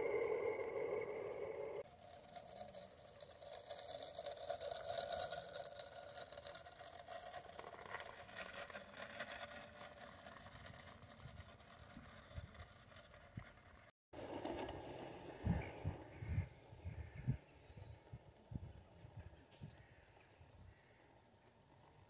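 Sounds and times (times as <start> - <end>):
model locomotive whirring and clicking: 0.0 - 16.8.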